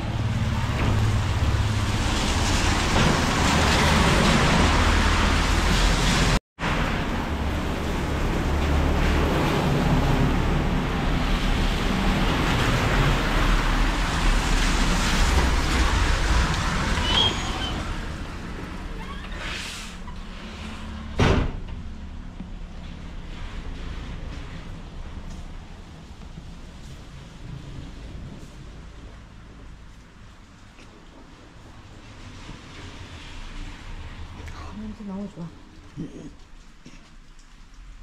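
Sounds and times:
heavy rain on a street: 0.0s - 20.0s, 31.4s - 38.0s.

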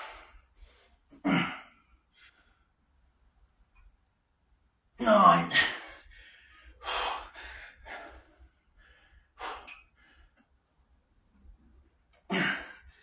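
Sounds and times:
man breathing out hard: 5.5s - 10.3s.

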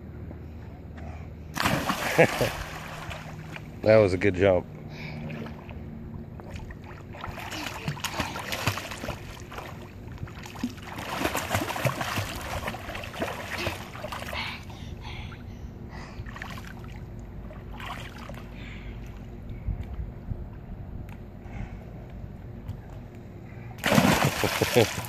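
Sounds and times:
child splashing in pool: 1.6s - 3.6s, 6.5s - 14.4s, 17.6s - 18.5s, 23.8s - 25.0s
water lapping: 4.9s - 14.8s, 16.2s - 19.3s, 23.8s - 25.0s.

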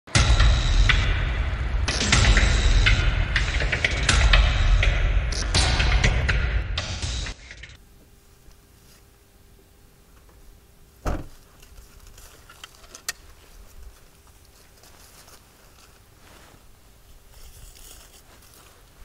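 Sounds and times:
car tailgate thump: 11.0s - 11.4s
footsteps on grass: 11.2s - 19.0s.

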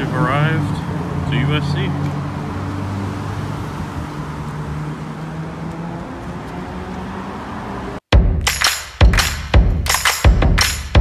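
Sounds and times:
cars driving past: 0.0s - 8.1s.

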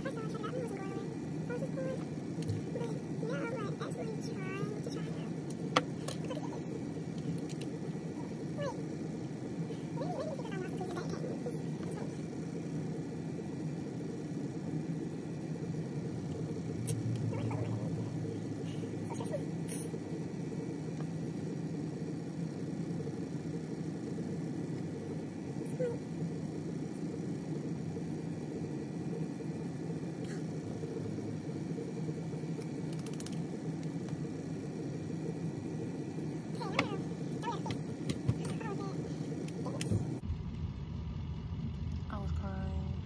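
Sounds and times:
low mechanical hum: 0.0s - 43.0s
faint clicks: 32.6s - 34.2s.

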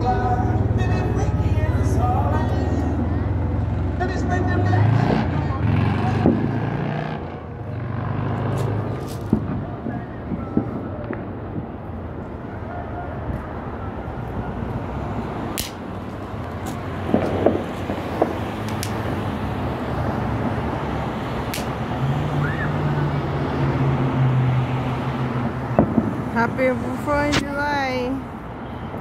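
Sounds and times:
low engine hum: 0.0s - 12.5s
traffic and street noise: 0.0s - 29.0s
distant fireworks popping: 7.8s - 12.4s, 15.6s - 22.0s, 25.4s - 27.6s.

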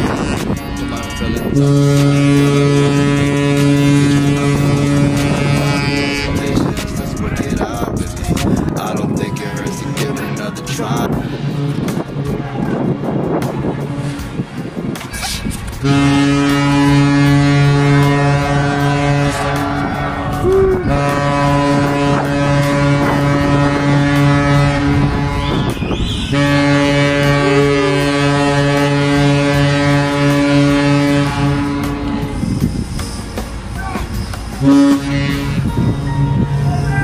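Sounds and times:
ship's horn blasts: 0.0s - 8.0s, 15.8s - 32.6s, 34.0s - 37.0s
people's voices: 0.0s - 25.4s, 26.5s - 29.2s.

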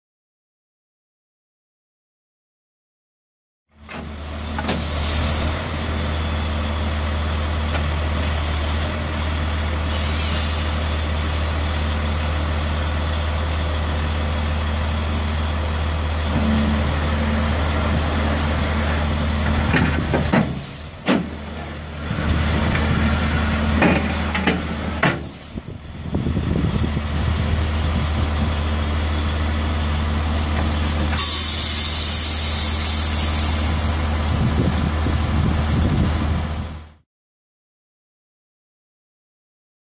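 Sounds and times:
lorry diesel engine running: 3.7s - 37.0s
loud air hiss: 9.9s - 10.9s, 31.2s - 34.3s.

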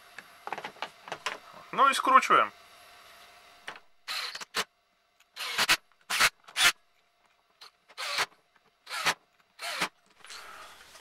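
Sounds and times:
screws scraping into plastic: 5.4s - 6.8s, 7.6s - 10.4s.

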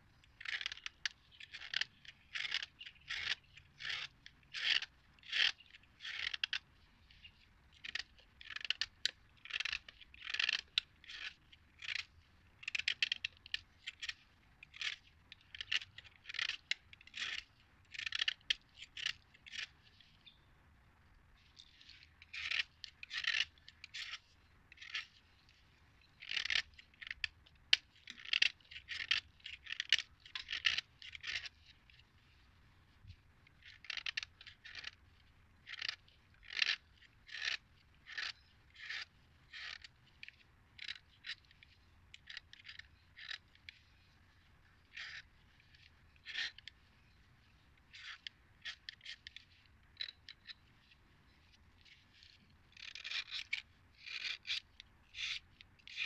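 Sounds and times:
knife blade scraping chalk: 52.8s - 54.6s.

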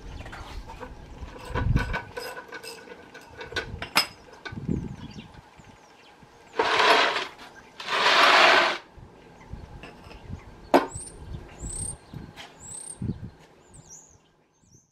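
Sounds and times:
metal unit scraping on concrete: 0.2s - 4.5s, 6.5s - 8.9s
birds chirping: 4.1s - 8.3s, 9.1s - 14.9s.

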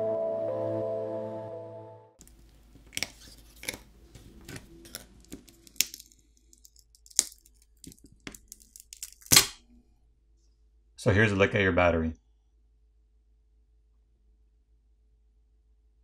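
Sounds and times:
background music: 0.0s - 2.2s
sharp clicks and cracks: 4.9s - 9.6s.

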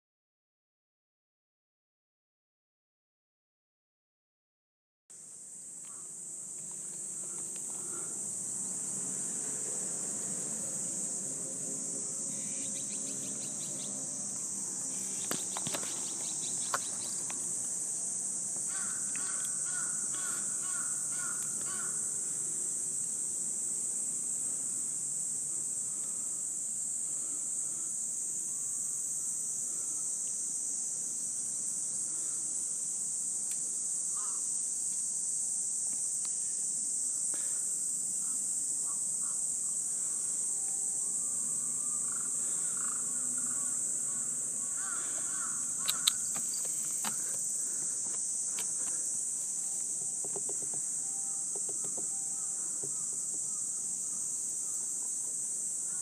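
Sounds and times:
insects droning: 5.1s - 56.0s
faint clicks: 45.8s - 47.2s.

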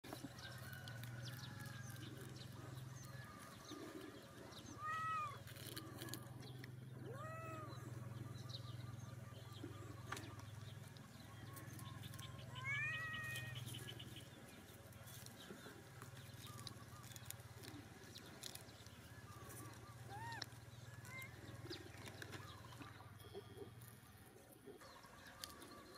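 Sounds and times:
cat meowing: 7.1s - 7.8s, 12.6s - 13.5s.

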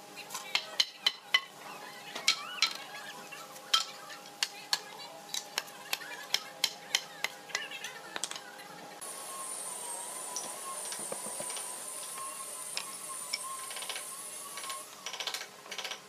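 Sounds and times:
faint steady hum: 0.0s - 16.0s
wooden parts and tools clicking: 10.4s - 16.0s.

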